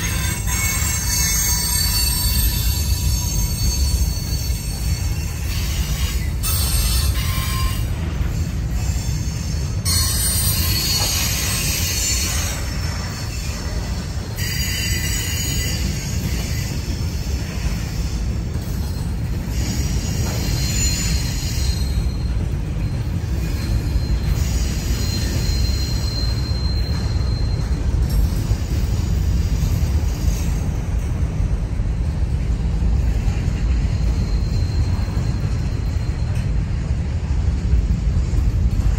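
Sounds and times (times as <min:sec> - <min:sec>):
faint wheel squeal: 0:00.0 - 0:30.9, 0:32.9 - 0:37.0
freight cars rumbling: 0:00.0 - 0:38.9.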